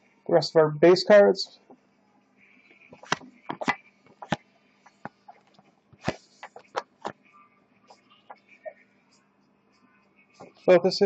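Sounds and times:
cards flipped with papery snaps: 0:03.0 - 0:04.4.

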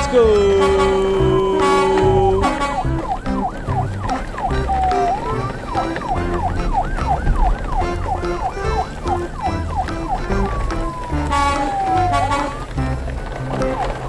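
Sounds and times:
electronic siren yelping: 0:00.0 - 0:13.0
music with stepping bass line: 0:00.0 - 0:14.0.

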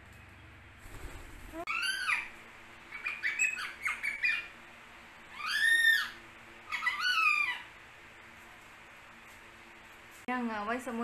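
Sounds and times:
parakeet squawking: 0:01.7 - 0:04.6, 0:05.3 - 0:07.8.

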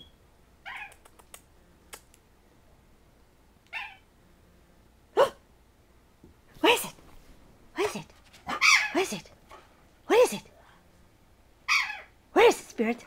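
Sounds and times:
dog yipping: 0:00.7 - 0:01.1, 0:03.7 - 0:04.0, 0:08.5 - 0:09.0, 0:11.7 - 0:12.1.

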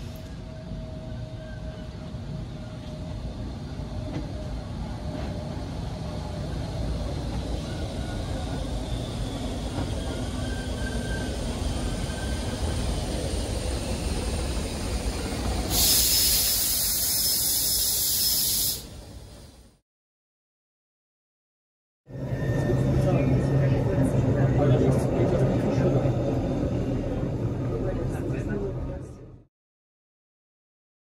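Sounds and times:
electric train rumbling: 0:00.0 - 0:19.8, 0:22.1 - 0:29.4
loud hiss: 0:15.6 - 0:19.1.

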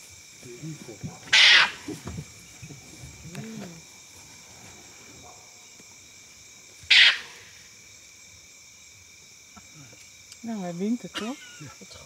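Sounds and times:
crickets trilling: 0:00.0 - 0:12.0
animal hissing snarl: 0:06.9 - 0:07.6.

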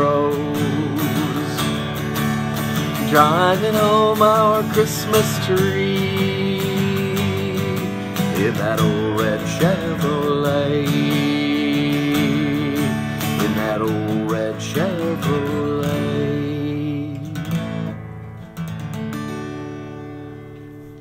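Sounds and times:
acoustic guitar strummed chords: 0:00.0 - 0:21.0.

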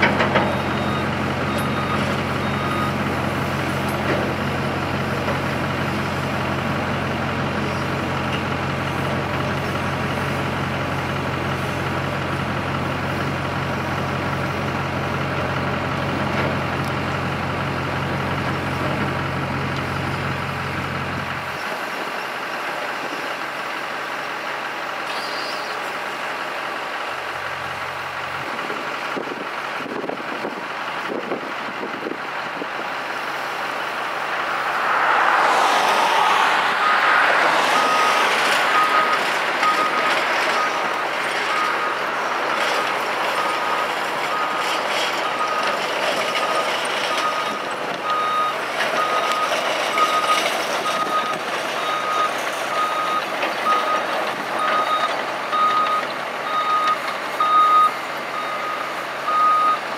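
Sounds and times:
excavator diesel engine: 0:00.0 - 0:59.9
travel alarm beeping: 0:46.6 - 0:54.0, 0:54.6 - 0:59.8.

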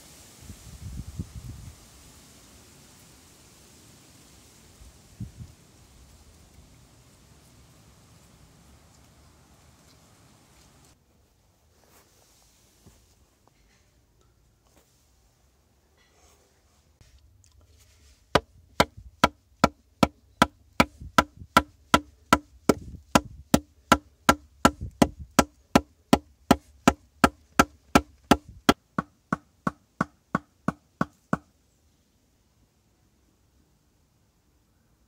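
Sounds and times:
wooden stick striking hard earth: 0:18.3 - 0:31.5.

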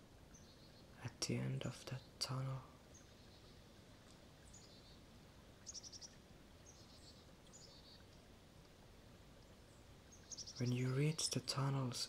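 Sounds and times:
small birds chirping: 0:00.0 - 0:08.7, 0:09.3 - 0:12.0
low steady hiss: 0:00.0 - 0:12.0
bird trill: 0:10.1 - 0:10.9.

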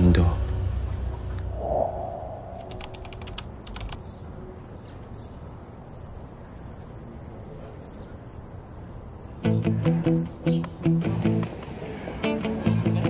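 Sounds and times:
steady low background noise: 0:00.0 - 0:09.5
light rapid clicks: 0:02.7 - 0:04.1.

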